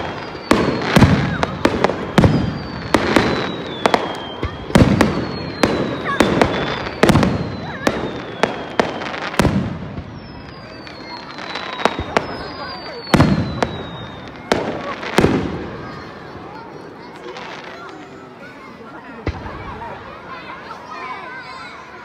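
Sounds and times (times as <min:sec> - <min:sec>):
firework whistles gliding down: 0:00.0 - 0:18.3.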